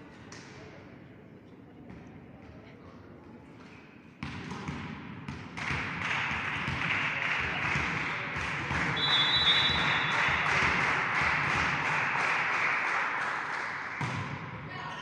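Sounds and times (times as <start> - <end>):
rhythmic clapping: 5.6 - 14.3
referee's whistle: 8.9 - 10.2.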